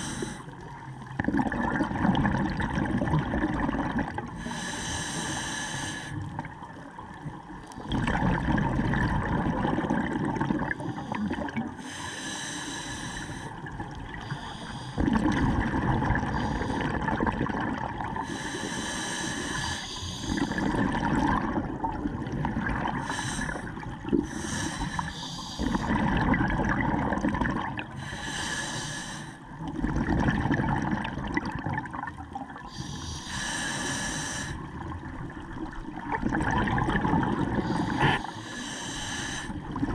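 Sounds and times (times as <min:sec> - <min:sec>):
regulator inhale hiss: 0:00.0 - 0:00.6, 0:04.4 - 0:06.2, 0:10.8 - 0:13.6, 0:14.2 - 0:15.0, 0:16.3 - 0:16.9, 0:18.2 - 0:20.7, 0:23.0 - 0:25.9, 0:28.0 - 0:29.5, 0:32.6 - 0:34.7, 0:37.6 - 0:39.7
exhaled bubbles rumbling: 0:00.0 - 0:04.4, 0:06.2 - 0:11.8, 0:13.5 - 0:18.4, 0:19.9 - 0:28.0, 0:29.4 - 0:33.6, 0:34.4 - 0:38.6, 0:39.4 - 0:39.9.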